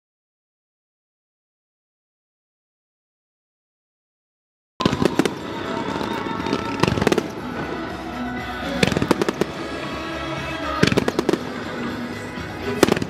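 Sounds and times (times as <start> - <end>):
fireworks bursting: 4.8 - 13.0
music: 4.8 - 13.0.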